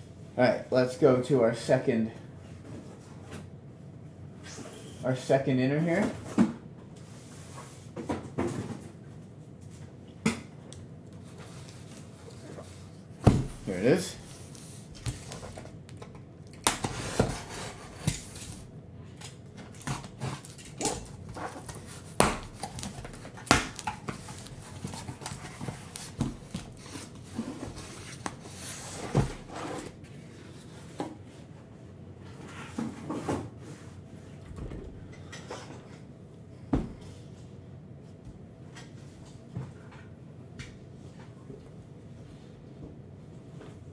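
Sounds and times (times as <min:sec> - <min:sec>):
cardboard and wrap rustling: 0:11.2 - 0:15.8, 0:16.6 - 0:18.7, 0:19.7 - 0:31.0.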